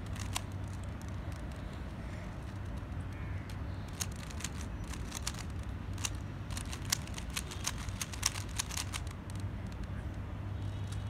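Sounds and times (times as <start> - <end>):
puzzle cube layers clicking: 0.0 - 1.7, 3.9 - 10.0
steady low hum: 0.0 - 10.5.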